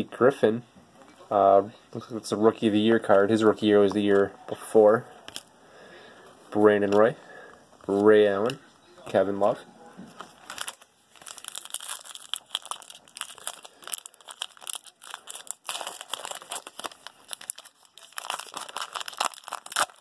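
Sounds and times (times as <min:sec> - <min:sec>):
foil wrapper crinkling: 0:10.2 - 0:20.0.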